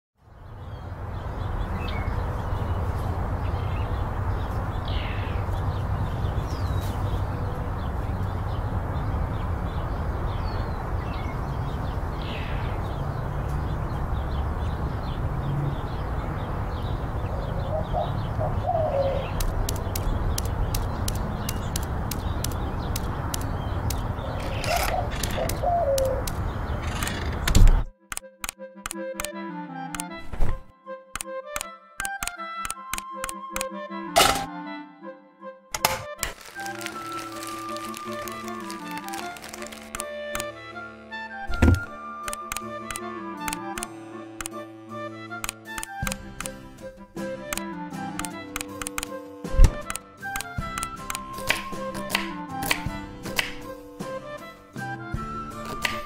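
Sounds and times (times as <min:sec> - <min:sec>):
birds chirping: 0:00.2 - 0:27.9, 0:36.3 - 0:41.9
dove cooing: 0:17.3 - 0:19.4, 0:24.2 - 0:27.4.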